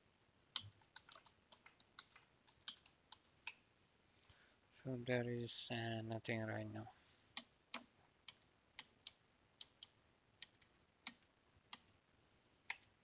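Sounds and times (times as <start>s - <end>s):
computer keyboard typing: 0.6s - 3.3s, 7.7s - 11.9s.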